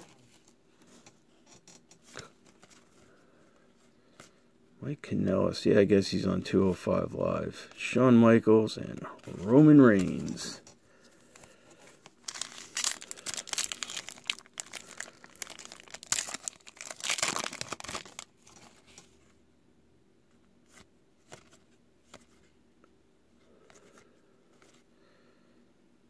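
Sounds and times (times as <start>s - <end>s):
foil wrapper crinkling and tearing: 12.1s - 18.7s.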